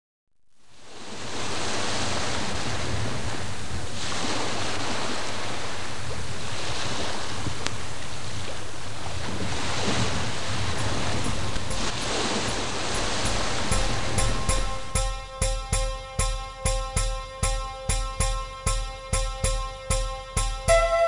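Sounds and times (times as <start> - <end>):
sea waves rushing: 0.9 - 16.6
wind on microphone: 1.0 - 15.0.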